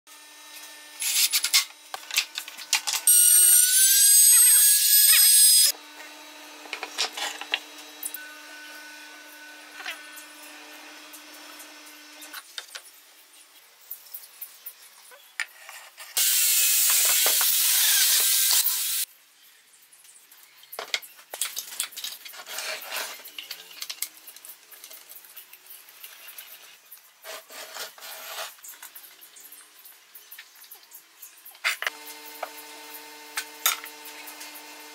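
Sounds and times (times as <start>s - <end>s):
steady machine hum: 5.7s - 12.4s
tools knocking and scraping wood: 6.6s - 7.7s.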